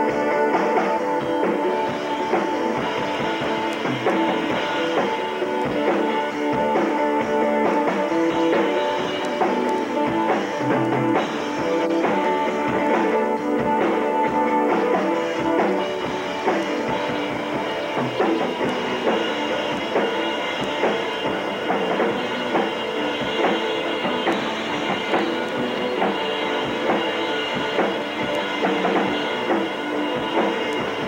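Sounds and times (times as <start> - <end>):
drum kit beat: 0.0 - 31.0.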